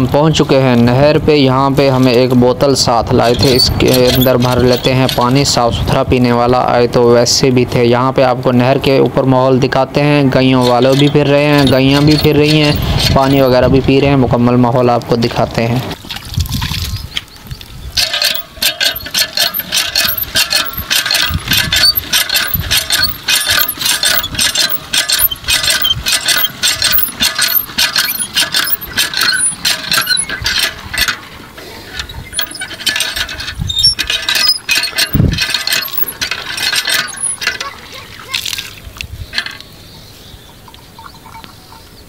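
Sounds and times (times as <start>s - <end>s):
hand pump squeaking and clanking: 2.1s - 5.7s, 10.3s - 13.8s, 16.0s - 39.7s.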